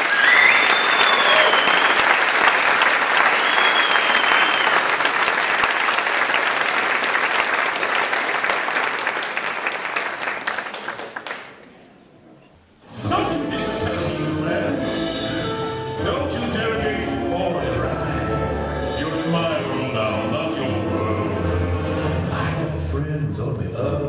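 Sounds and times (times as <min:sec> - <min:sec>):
long high whistle: 0:00.0 - 0:02.2, 0:03.3 - 0:04.9
audience applauding: 0:00.0 - 0:11.7.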